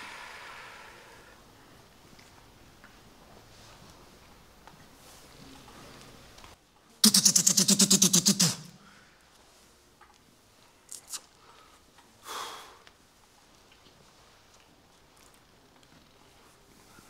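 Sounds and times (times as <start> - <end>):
man imitating machine-gun fire: 7.0 - 8.9.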